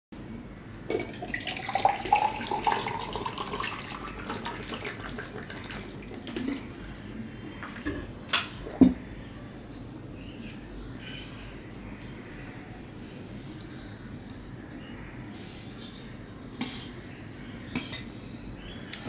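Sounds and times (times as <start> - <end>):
water pouring into a glass: 1.0 - 6.7.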